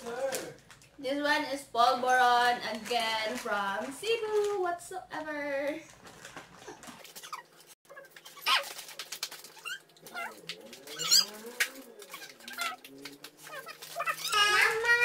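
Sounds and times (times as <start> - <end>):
plastic wrapper crinkling: 0.0 - 1.0, 2.2 - 4.6, 5.6 - 15.0.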